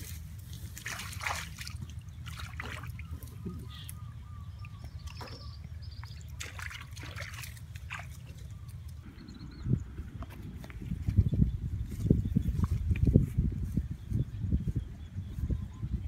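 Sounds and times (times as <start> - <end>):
feet stepping in wet mud: 0.0 - 3.4, 6.0 - 8.8
muddy water sloshing: 0.0 - 9.1.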